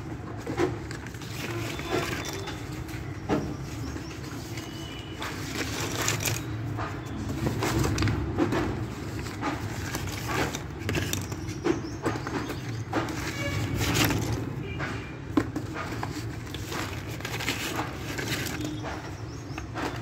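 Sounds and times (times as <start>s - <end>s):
pencils clattering together: 0.4s - 2.9s, 3.6s - 14.4s, 15.3s - 20.0s.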